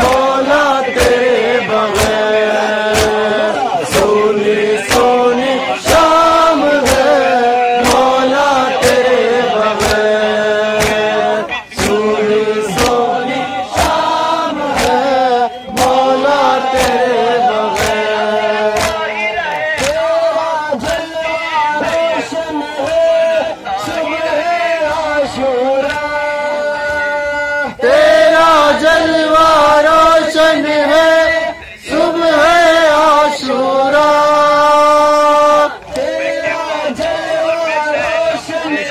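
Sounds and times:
men chanting in unison: 0:00.0 - 0:38.9.

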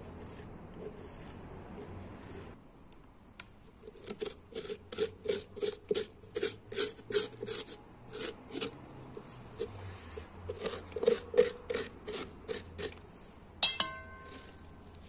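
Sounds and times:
metal spoon scraping pumpkin: 0:03.7 - 0:13.0, 0:13.6 - 0:15.0.

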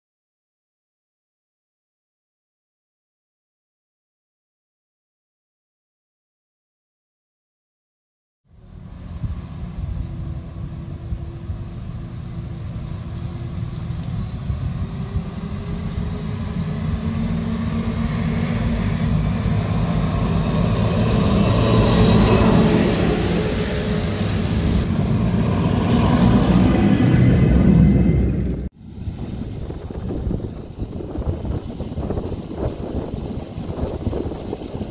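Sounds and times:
diesel engines droning: 0:08.5 - 0:34.9
tracks rumbling: 0:08.6 - 0:34.9.

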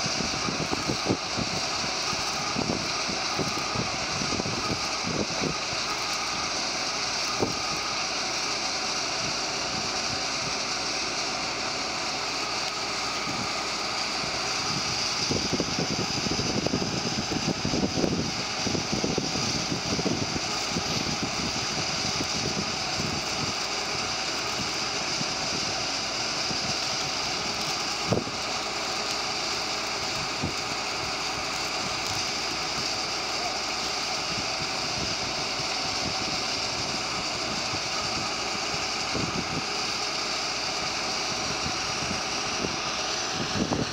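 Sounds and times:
wind buffeting microphone: 0:00.0 - 0:06.0, 0:13.2 - 0:25.8, 0:34.2 - 0:40.0, 0:41.3 - 0:43.9
tram equipment hiss and hum: 0:00.0 - 0:43.9.

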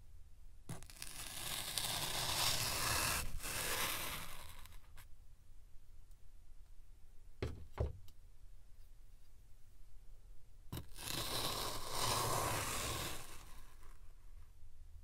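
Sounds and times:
scoop scraping through sand: 0:01.4 - 0:04.7, 0:11.0 - 0:14.0.

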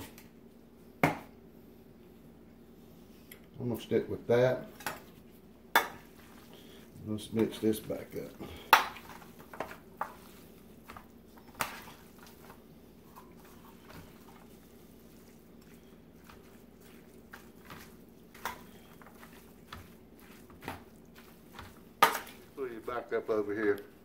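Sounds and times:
wet meat squishing: 0:05.1 - 0:22.9.

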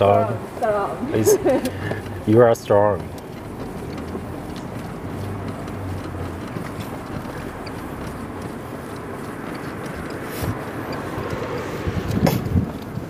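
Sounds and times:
rickshaw wheels rolling: 0:00.0 - 0:13.0
wind on microphone: 0:10.1 - 0:13.0.

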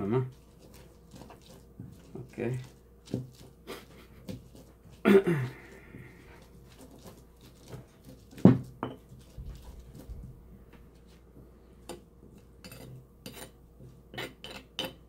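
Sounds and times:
stone pestle grinding and knocking: 0:00.3 - 0:03.6, 0:04.2 - 0:05.0, 0:06.2 - 0:10.2, 0:11.9 - 0:15.0.

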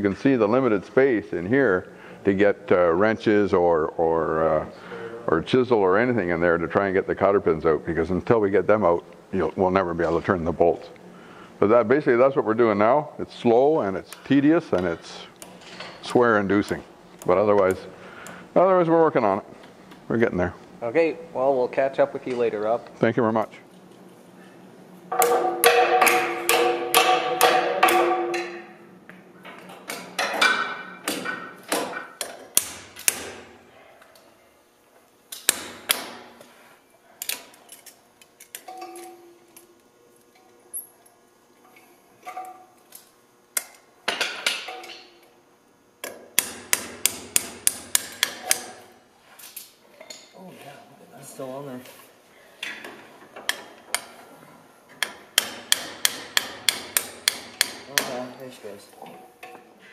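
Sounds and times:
hammer striking chisel on steel: 0:25.1 - 0:28.8, 0:55.0 - 0:58.3.

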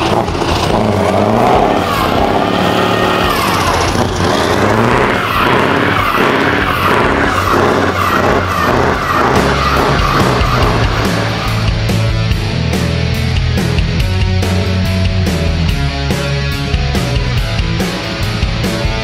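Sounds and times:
tyres spinning and squealing: 0:00.0 - 0:12.4
truck diesel engine revving: 0:00.0 - 0:19.0.

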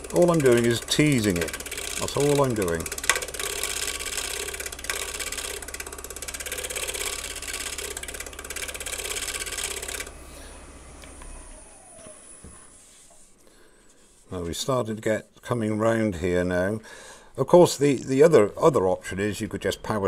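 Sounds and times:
scraper rasping on spinning wood: 0:00.0 - 0:10.1
lathe motor spinning down: 0:00.0 - 0:13.0
lathe motor hum: 0:00.0 - 0:13.3.

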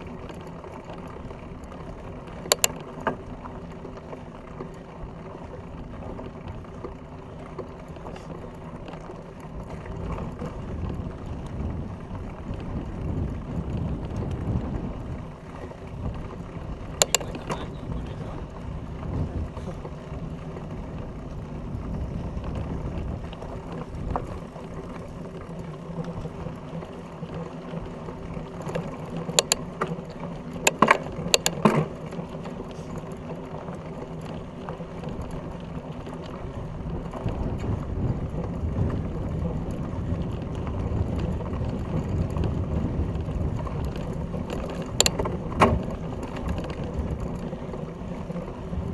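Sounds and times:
bike clacking over bumps: 0:00.0 - 0:48.9
bike tyres rolling over dirt: 0:00.0 - 0:48.9
drivetrain rattle: 0:16.2 - 0:18.6, 0:28.4 - 0:32.0.

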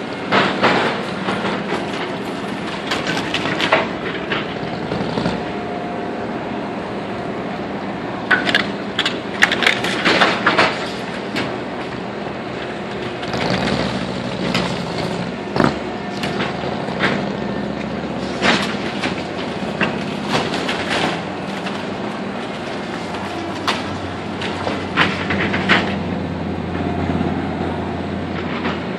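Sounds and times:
excavator diesel engine running: 0:00.0 - 0:28.9
wood splintering and debris crashing: 0:13.0 - 0:25.9.

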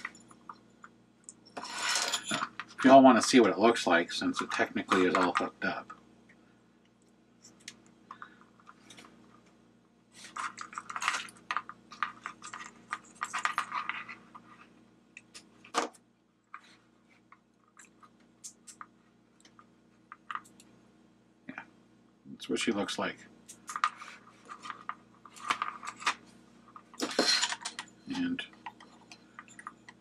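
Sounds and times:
hands handling small parts: 0:10.2 - 0:14.4, 0:23.5 - 0:27.9.

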